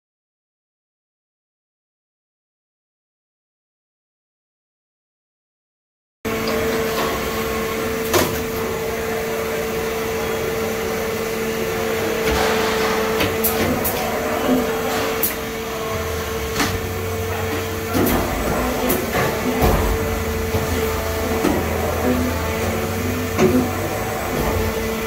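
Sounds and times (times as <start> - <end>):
deeper hum: 6.3 - 25.0
machine hum: 6.3 - 25.0.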